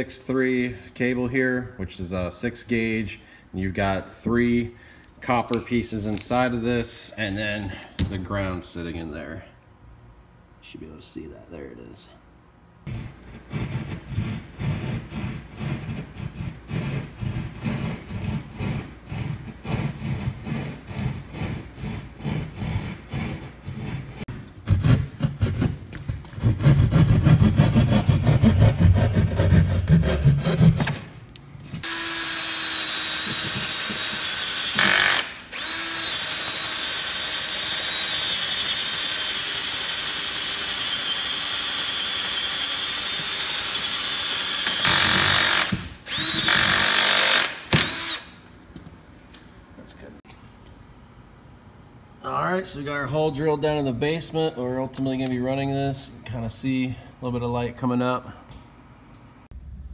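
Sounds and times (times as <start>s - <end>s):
hand saw cutting drywall: 12.9s - 31.1s, 31.8s - 48.3s
cordless drill boring into wood: 31.8s - 48.4s.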